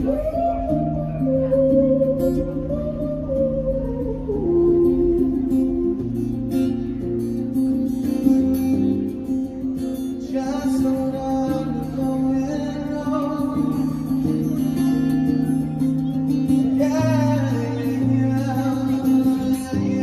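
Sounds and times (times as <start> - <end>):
acoustic guitar strumming: 0.0 - 20.0
man singing: 10.1 - 14.5, 16.5 - 20.0.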